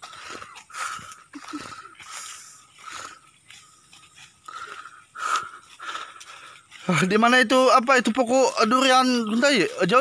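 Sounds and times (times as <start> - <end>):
footsteps crunching through leaves: 0.0 - 10.0.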